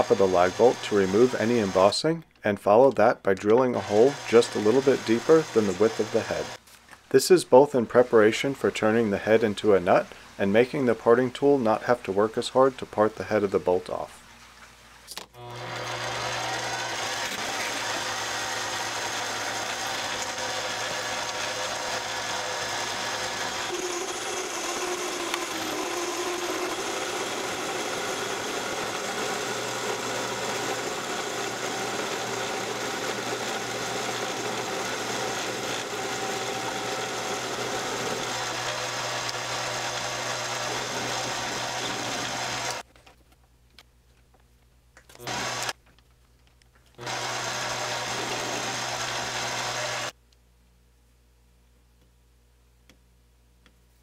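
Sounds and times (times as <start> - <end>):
metal lathe running: 0.0 - 1.8, 3.8 - 6.6, 15.4 - 42.8, 45.2 - 45.7, 47.0 - 50.1.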